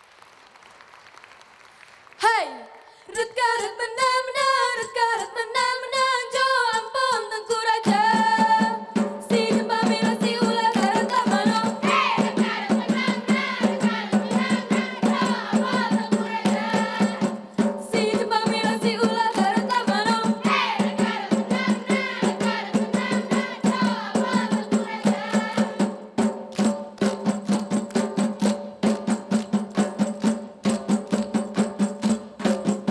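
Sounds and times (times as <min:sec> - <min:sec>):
women singing a chant-like song: 0:02.2 - 0:26.0.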